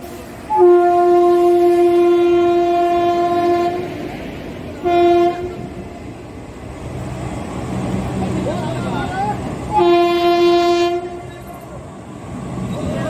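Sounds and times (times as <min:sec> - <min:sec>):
train coaches rumbling on rails: 0:00.0 - 0:13.0
locomotive horn blasts: 0:00.5 - 0:04.0, 0:04.8 - 0:05.8, 0:09.7 - 0:11.4.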